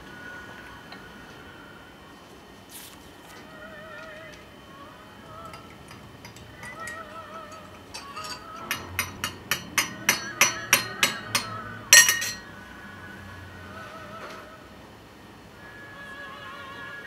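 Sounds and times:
teaspoon clinking in teacup: 0:06.3 - 0:12.4.

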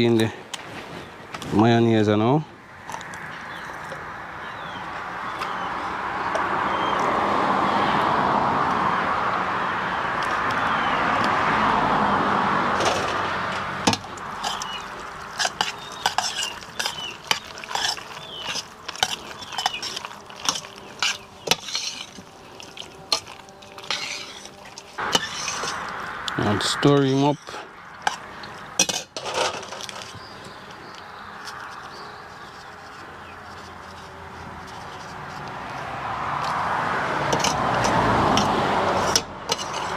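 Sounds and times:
metal spoon scraping a pot: 0:13.9 - 0:26.1, 0:27.0 - 0:30.3, 0:31.4 - 0:35.5, 0:37.3 - 0:39.9.

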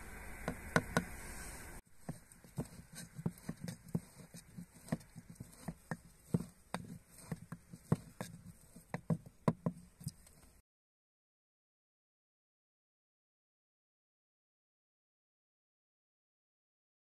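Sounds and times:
pestle pounding in wooden mortar: 0:02.0 - 0:10.3.

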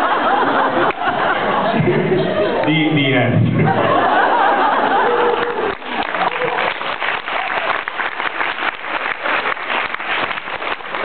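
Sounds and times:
audience applause: 0:03.9 - 0:11.0.

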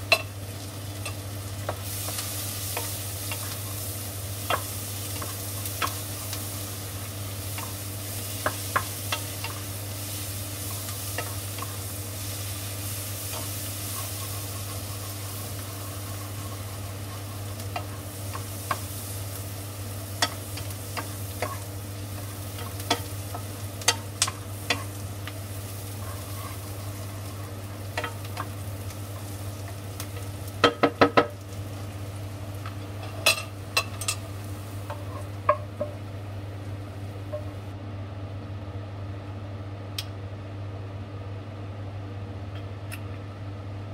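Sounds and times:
onions sizzling in a pan: 0:00.0 - 0:37.8
wooden spatula knocking on pan: 0:30.6 - 0:31.4.

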